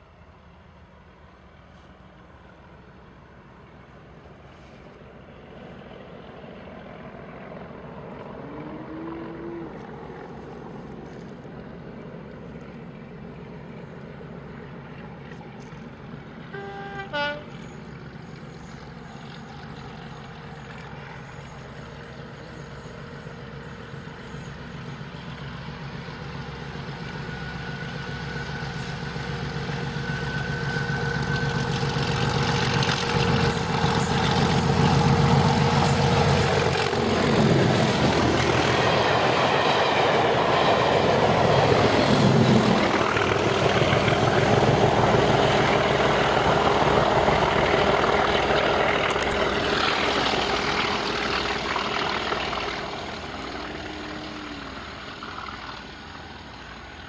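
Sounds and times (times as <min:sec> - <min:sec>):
diesel locomotives at full throttle: 0:00.0 - 0:57.0
two-tone train horn: 0:16.5 - 0:17.7.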